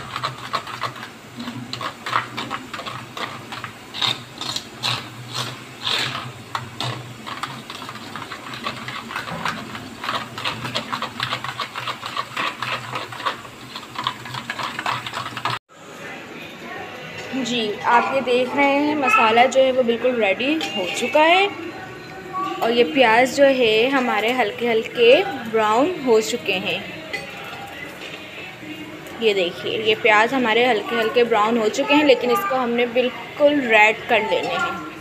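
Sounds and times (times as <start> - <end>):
stirring in a steel bowl: 0.0 - 15.6, 22.6 - 35.0.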